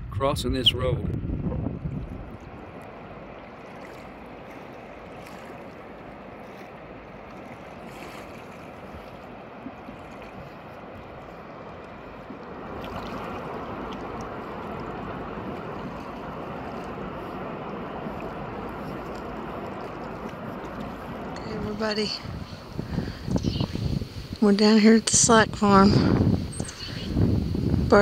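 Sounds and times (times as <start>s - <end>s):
steady rushing noise: 10.8s - 28.0s.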